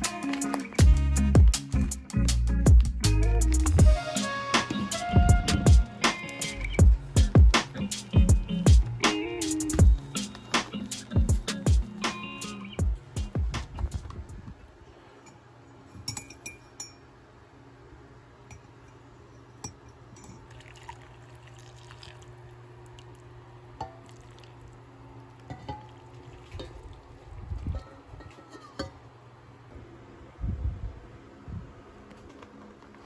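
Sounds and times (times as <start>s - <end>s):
low steady hum: 0.0s - 33.0s
metal and ceramic clinks: 15.2s - 17.1s, 18.5s - 20.6s
water pouring into mug: 20.5s - 23.3s, 23.9s - 24.8s.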